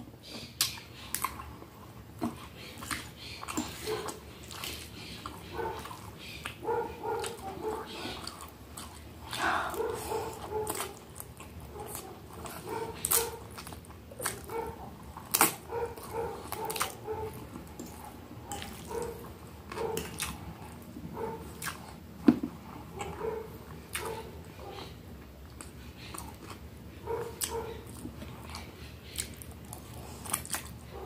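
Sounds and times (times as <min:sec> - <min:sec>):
chewing and crunching food: 0:00.0 - 0:31.0.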